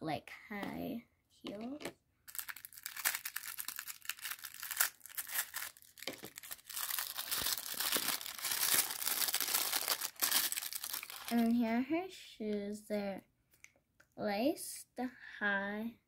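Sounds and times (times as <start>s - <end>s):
tissue paper crinkling: 2.3s - 11.6s.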